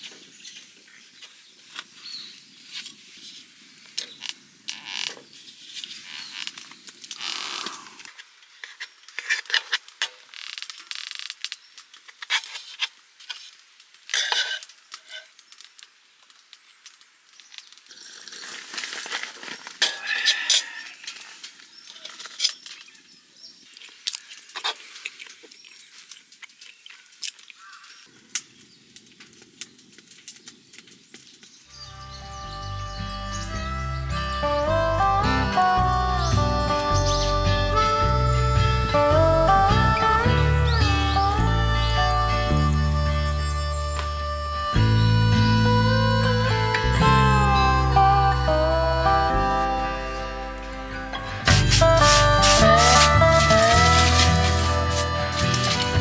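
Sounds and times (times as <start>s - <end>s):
cutlery scraping metal plate: 14.1s - 15.3s.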